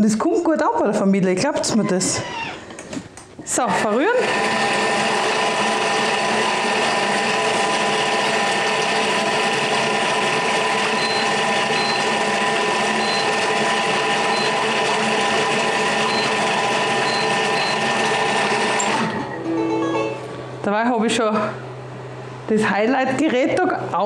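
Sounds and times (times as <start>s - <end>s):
food processor motor whining: 3.7s - 19.4s.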